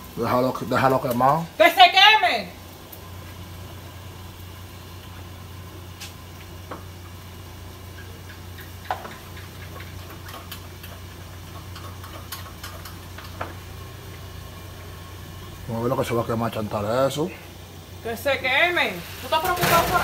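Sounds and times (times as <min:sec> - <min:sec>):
steady low hum: 0:02.5 - 0:20.0
kitchen items clicking and tapping: 0:08.0 - 0:13.6.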